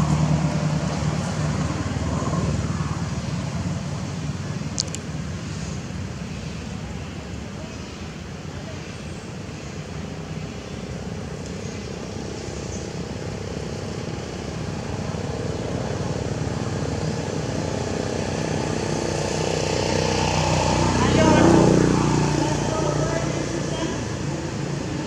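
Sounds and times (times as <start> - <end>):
vehicle engine running: 0.0 - 6.1, 11.0 - 25.0.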